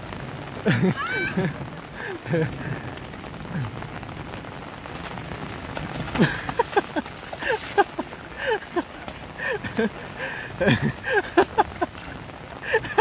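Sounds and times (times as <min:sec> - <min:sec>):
rain falling on a flooded street: 0:00.0 - 0:13.0
feet splashing through puddles: 0:04.8 - 0:13.0.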